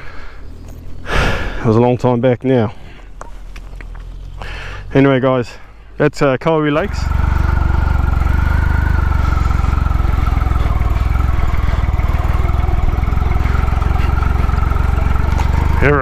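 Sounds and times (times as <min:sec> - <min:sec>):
motorcycle engine running: 0:06.8 - 0:16.0.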